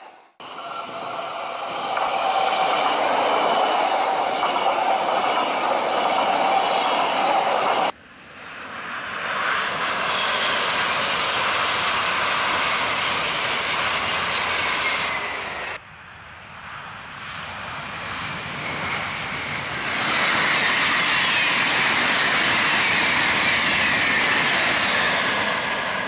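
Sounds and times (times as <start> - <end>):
distant train running past: 0.0 - 26.0
high-speed train passing: 0.0 - 26.0.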